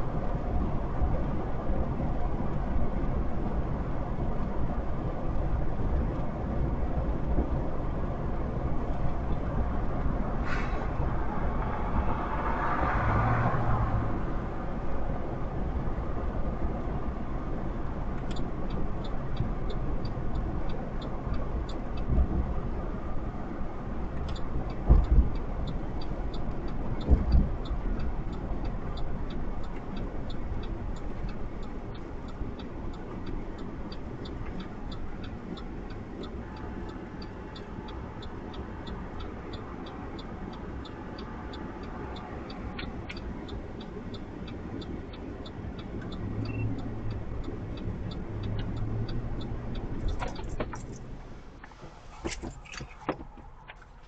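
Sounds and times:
low engine rumble: 0.0 - 54.0.

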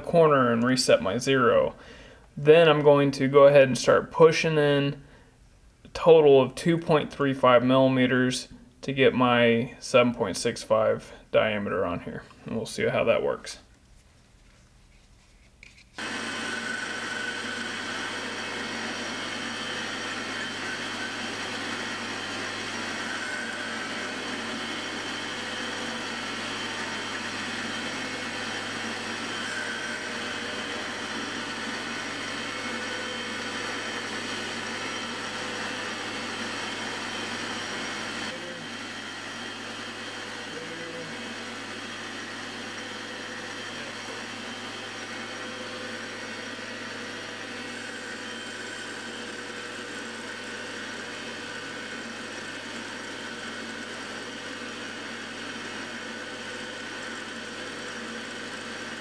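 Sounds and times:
metal lathe motor whirring: 16.0 - 59.0.

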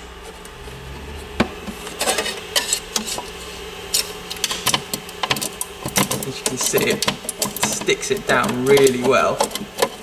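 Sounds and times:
metal scraper scraping and clicking: 6.0 - 10.0.

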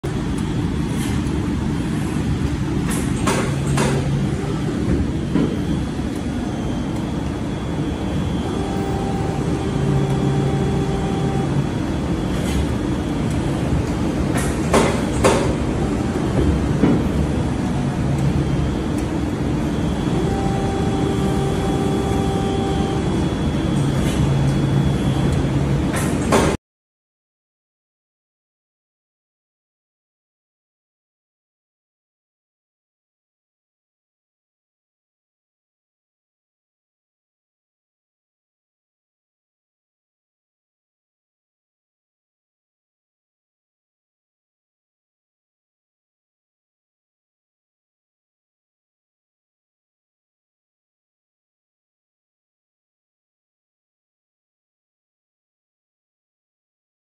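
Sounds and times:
pitched machine whine: 0.0 - 26.6.

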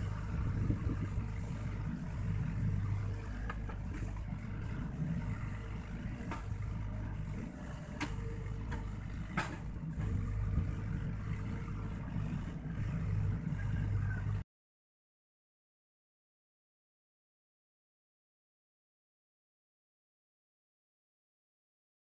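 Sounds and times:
mini excavator engine running: 0.0 - 14.4.

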